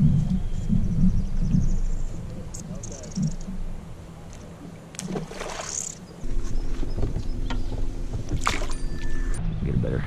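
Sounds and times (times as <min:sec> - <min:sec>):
boat motor humming: 0:00.0 - 0:10.0
fish splashing in water: 0:05.0 - 0:06.0, 0:08.2 - 0:09.2.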